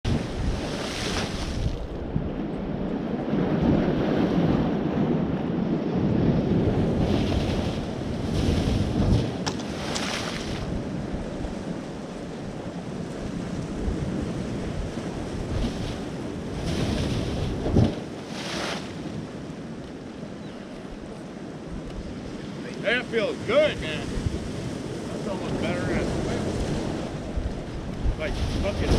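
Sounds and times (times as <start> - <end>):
wind rumbling on microphone: 0.0 - 28.9
water surging through blowhole: 22.0 - 28.9.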